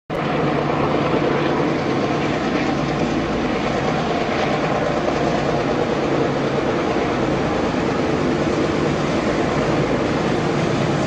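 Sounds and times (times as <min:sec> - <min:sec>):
diesel locomotive engine drone: 0:00.1 - 0:11.0.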